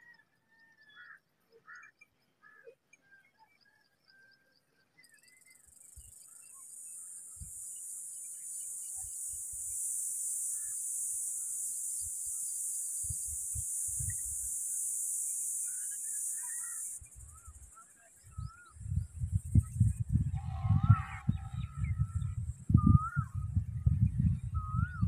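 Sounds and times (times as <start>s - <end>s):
bird chirps: 0.9s - 25.0s
high-pitched hiss: 5.8s - 18.6s.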